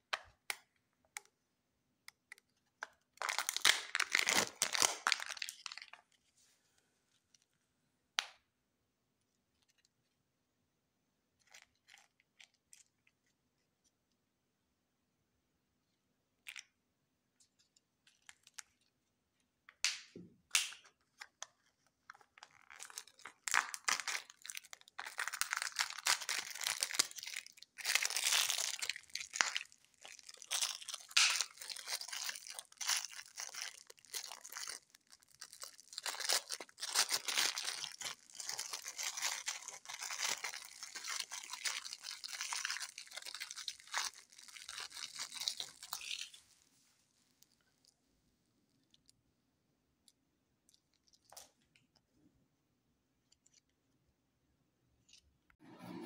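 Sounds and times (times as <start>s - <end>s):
plastic packet crinkling and tearing: 2.9s - 6.2s, 21.0s - 46.6s.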